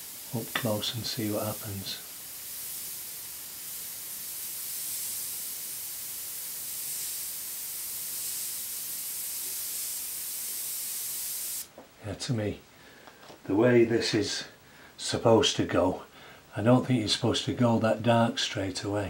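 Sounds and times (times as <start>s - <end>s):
airbrush hiss: 0.0s - 11.7s.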